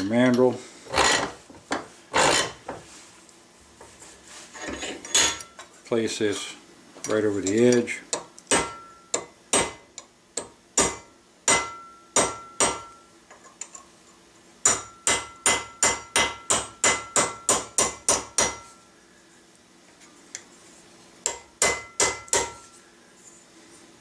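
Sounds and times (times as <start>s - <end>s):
small hammer tapping metal: 7.5s - 13.0s, 14.6s - 18.8s, 21.2s - 22.7s.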